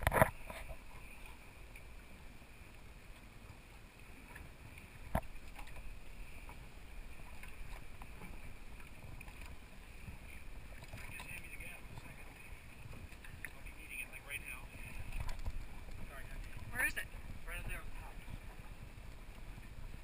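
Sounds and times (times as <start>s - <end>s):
water lapping against hull: 0.0s - 20.0s
wind: 0.0s - 20.0s.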